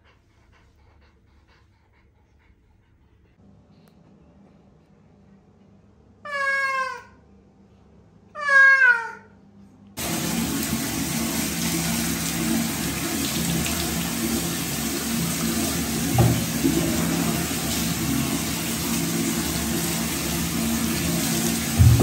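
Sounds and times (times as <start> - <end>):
water pouring and splashing: 10.0 - 22.0
brief knock: 16.2 - 16.5.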